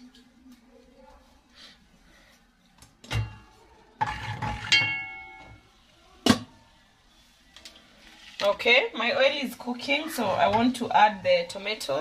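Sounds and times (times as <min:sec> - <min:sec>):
metal cookware clattering: 0:03.1 - 0:05.6.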